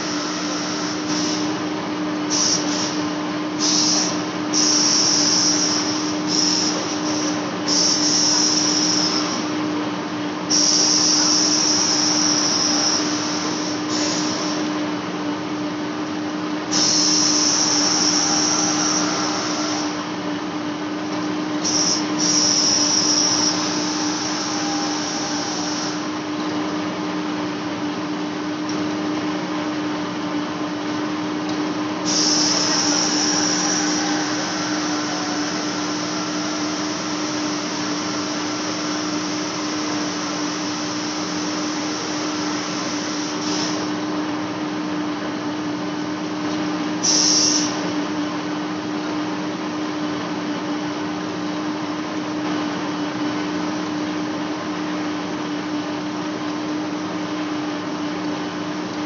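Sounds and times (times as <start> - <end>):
metal cutting hiss: 0.0 - 1.6, 2.3 - 3.0, 3.6 - 9.5, 10.5 - 14.7, 16.7 - 20.1, 21.6 - 26.2, 32.0 - 43.9, 47.0 - 47.8
lathe humming: 17.2 - 21.1, 21.9 - 26.6, 32.1 - 43.4.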